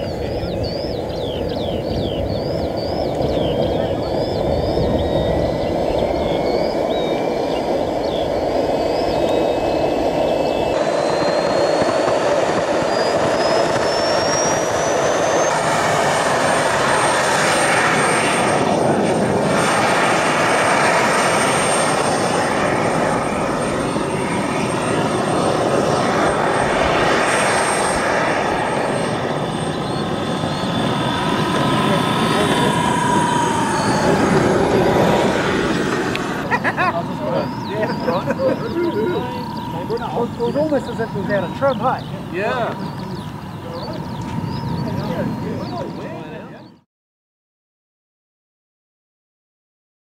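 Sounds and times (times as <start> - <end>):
jet turbine engine whine: 0.0 - 46.9.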